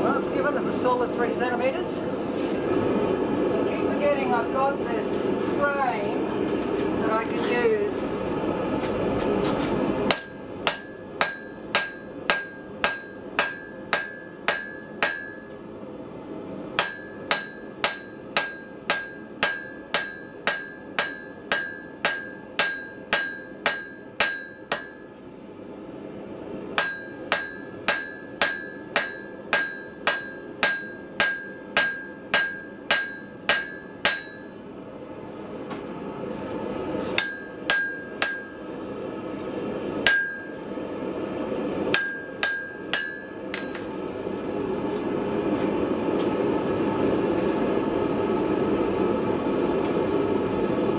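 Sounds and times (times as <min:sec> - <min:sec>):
hammer striking hot steel on anvil: 0:10.1 - 0:15.6, 0:16.8 - 0:25.1, 0:26.8 - 0:34.6, 0:37.2 - 0:38.6, 0:40.0 - 0:40.6, 0:41.9 - 0:43.9.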